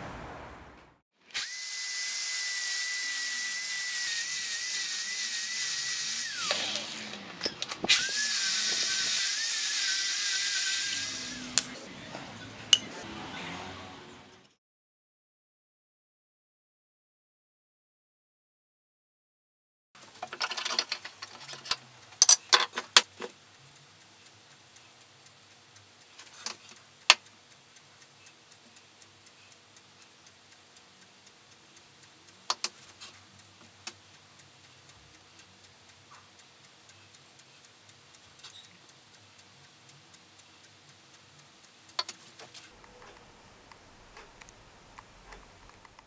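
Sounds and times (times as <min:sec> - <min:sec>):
wall clock ticking: 0:21.0 - 0:46.0
sharp clicks and knocks: 0:32.5 - 0:34.0, 0:41.9 - 0:46.0.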